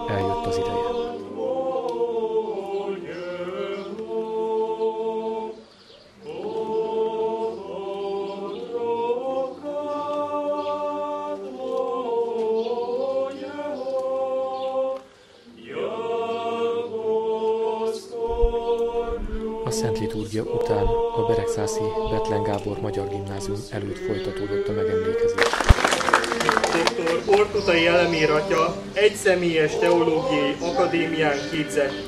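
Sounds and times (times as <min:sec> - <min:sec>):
group of voices chanting: 0:00.0 - 0:05.6, 0:15.5 - 0:32.0.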